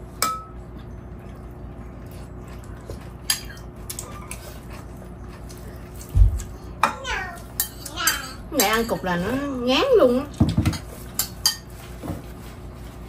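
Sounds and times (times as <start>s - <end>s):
steady low hum: 0.0s - 13.0s
spoons clinking on ceramic bowls: 3.2s - 3.7s, 7.6s - 9.4s, 10.6s - 11.7s.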